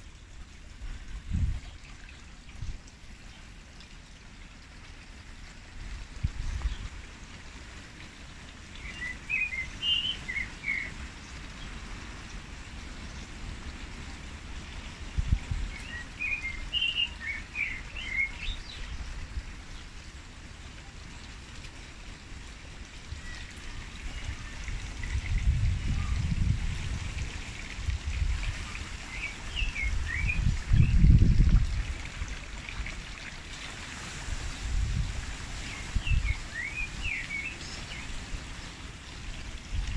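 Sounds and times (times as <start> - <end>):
wind gusting against microphone: 14.9 - 16.8, 23.1 - 32.3, 34.0 - 38.6, 39.4 - 39.9.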